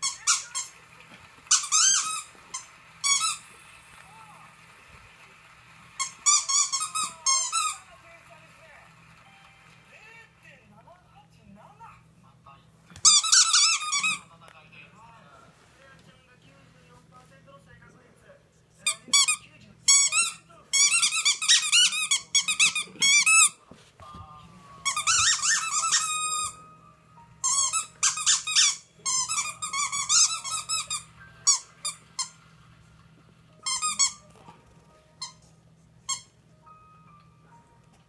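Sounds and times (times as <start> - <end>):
squeaky toy squeaking: 0.0 - 0.8, 1.5 - 3.5, 6.0 - 7.8, 13.0 - 14.3, 18.8 - 23.6, 24.8 - 26.6, 27.4 - 32.3, 33.6 - 34.3, 35.2 - 35.4, 36.0 - 36.4.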